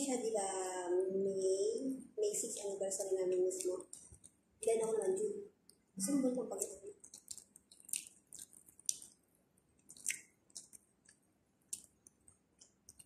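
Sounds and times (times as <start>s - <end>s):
person chewing: 3.6s - 4.4s, 6.6s - 13.0s
wet mouth smacks and clicks: 6.6s - 9.2s, 9.8s - 13.0s.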